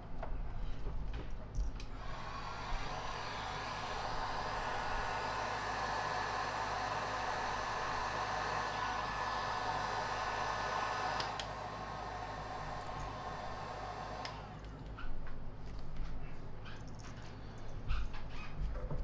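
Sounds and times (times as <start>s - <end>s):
heat gun whirring: 1.8s - 14.6s.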